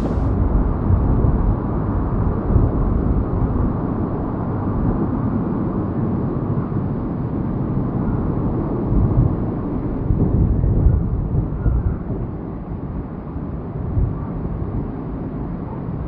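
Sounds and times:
jet engines rumbling: 0.0s - 0.4s.

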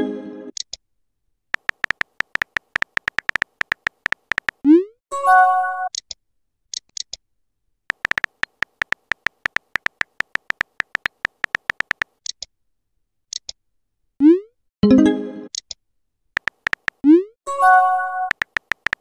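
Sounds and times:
light clicks: 1.6s - 4.6s, 7.9s - 12.4s, 16.4s - 17.0s, 18.3s - 19.0s
rapid keyboard taps: 1.6s - 4.6s, 7.9s - 12.2s, 16.4s - 17.0s, 18.3s - 19.0s.

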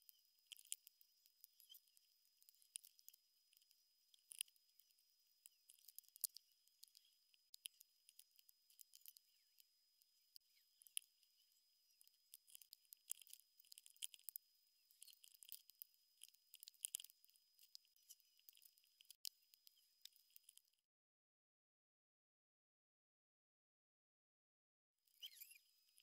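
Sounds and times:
faint steady high tone: 0.0s - 20.8s.

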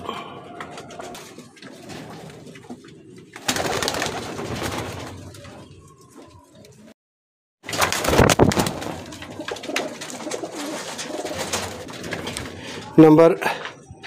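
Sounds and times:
pigeons cooing: 0.0s - 6.9s, 8.6s - 13.0s.

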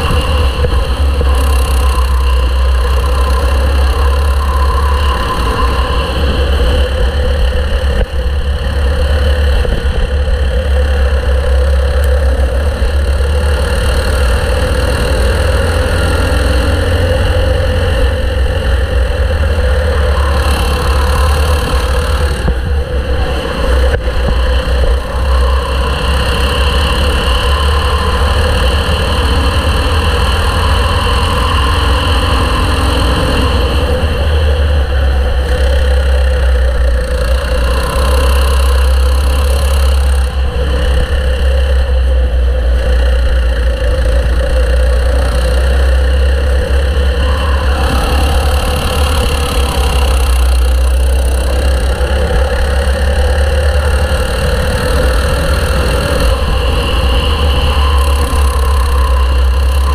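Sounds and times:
kart engine running: 0.0s - 59.9s
wind rumble on microphone: 0.0s - 59.9s.

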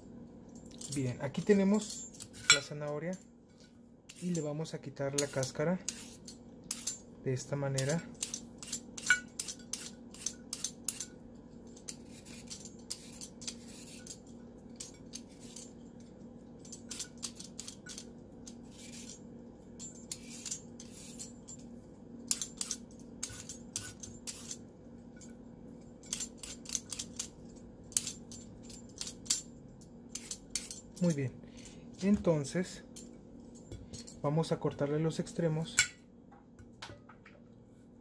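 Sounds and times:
faint steady hum: 0.0s - 38.0s
peeler scraping carrot: 5.1s - 6.9s, 11.9s - 14.1s.

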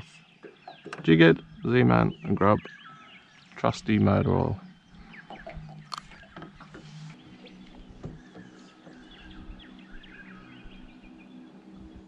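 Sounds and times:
small birds chirping: 0.0s - 12.0s
steady low hum: 1.0s - 12.0s
faint knocks: 5.2s - 10.0s.

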